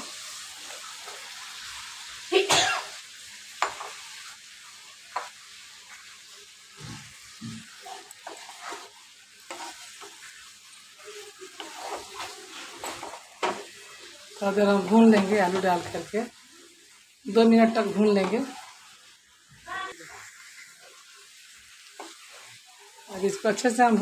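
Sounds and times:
masala sizzling in oil: 0.0 - 24.0
wooden spatula knocking and scraping pan: 3.6 - 4.0, 5.1 - 5.4, 6.8 - 10.3, 11.6 - 13.7, 14.7 - 16.2, 18.1 - 18.6.

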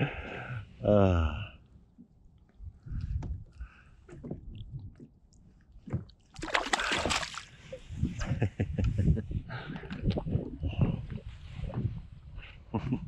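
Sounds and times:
fish splashing at water surface: 6.3 - 7.5.

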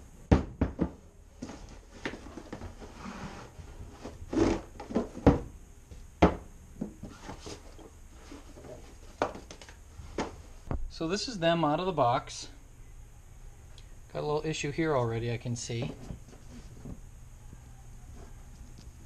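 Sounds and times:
knocks on wooden workbench: 0.3 - 1.0, 6.2 - 6.5.

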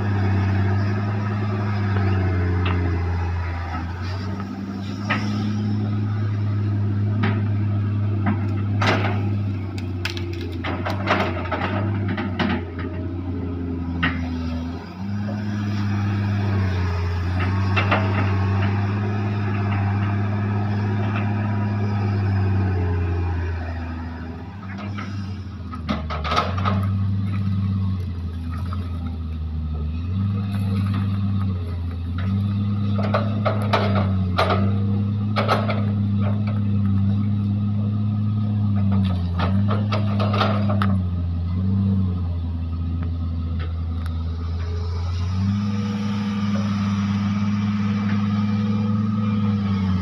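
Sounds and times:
excavator diesel engine running: 0.0 - 50.0.

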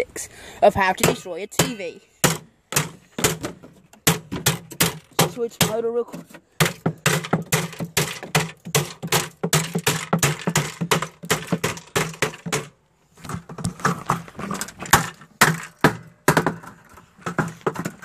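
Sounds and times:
hammer striking television: 1.0 - 5.8, 6.6 - 12.7.

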